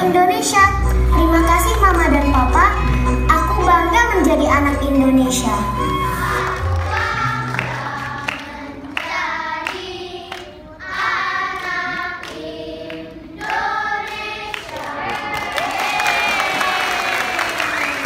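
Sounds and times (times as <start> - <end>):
children singing in unison: 5.8 - 15.6.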